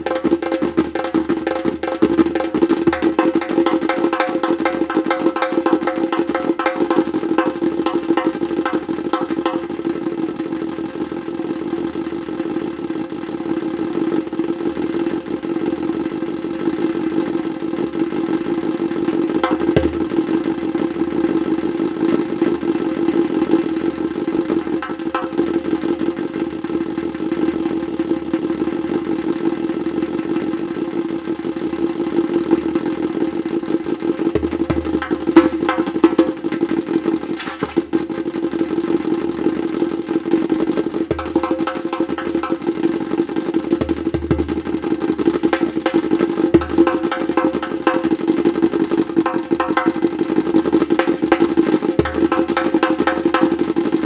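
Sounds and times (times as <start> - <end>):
djembe played by hand: 0.0 - 10.1, 19.4 - 20.4, 24.4 - 25.7, 34.2 - 38.0, 40.8 - 54.0.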